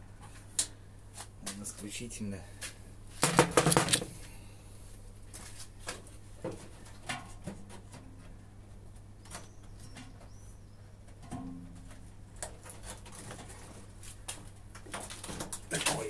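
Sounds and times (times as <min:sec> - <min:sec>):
bird chirping: 0:09.2 - 0:10.9.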